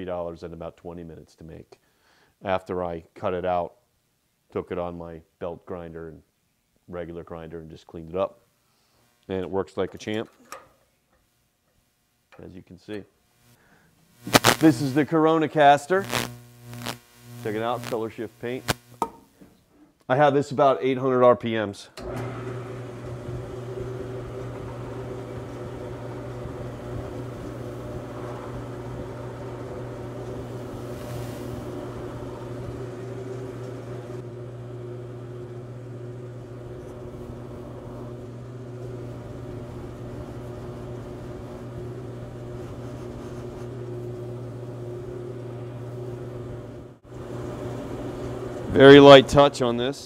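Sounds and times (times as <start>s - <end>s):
lathe motor humming: 22.0s - 49.5s.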